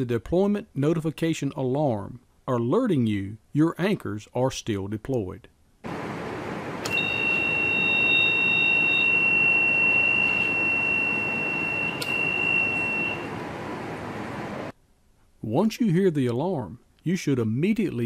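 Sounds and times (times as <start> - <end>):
higher alarm tone: 6.8 - 13.4
high-pitched alarm tone: 6.9 - 13.4.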